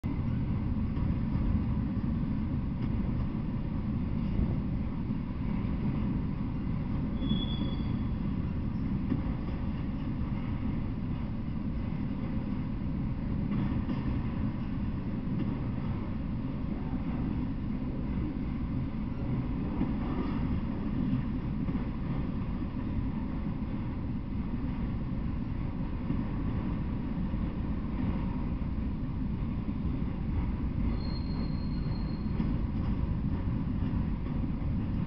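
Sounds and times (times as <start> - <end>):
train wheels rumbling on rails: 0.0 - 35.0
high train squeal: 3.7 - 12.7, 13.5 - 22.8, 29.8 - 34.2.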